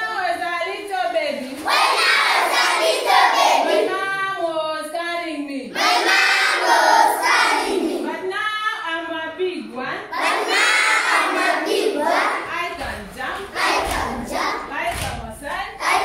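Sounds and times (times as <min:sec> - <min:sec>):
children singing in chorus: 0:01.6 - 0:03.9, 0:05.8 - 0:08.1, 0:10.2 - 0:12.5, 0:13.4 - 0:14.7.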